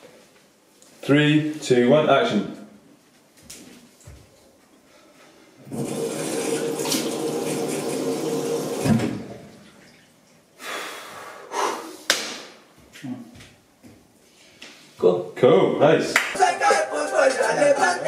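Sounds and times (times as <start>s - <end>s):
washing sounds at basin: 5.7s - 10.5s
tap running into sink: 5.8s - 9.3s.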